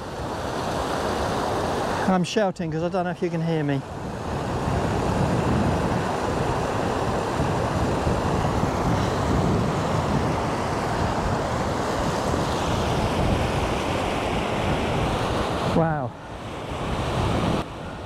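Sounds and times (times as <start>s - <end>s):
wind buffeting microphone: 3.1s - 18.0s.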